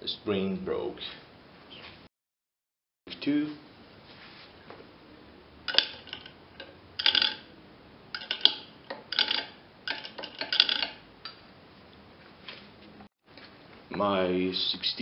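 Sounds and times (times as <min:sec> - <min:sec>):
pliers clinking and rattling on metal: 0:05.7 - 0:07.4, 0:08.2 - 0:11.0.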